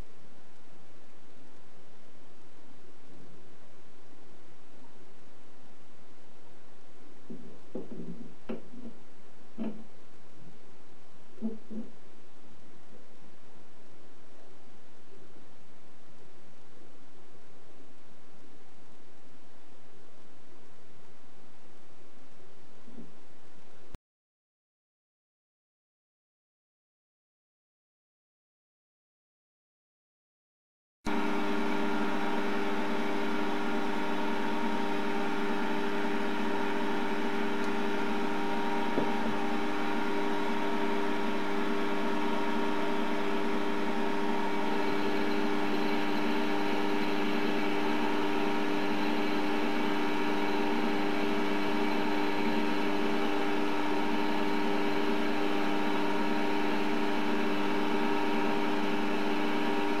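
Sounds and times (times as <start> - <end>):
lathe motor whining: 31.1 - 60.0.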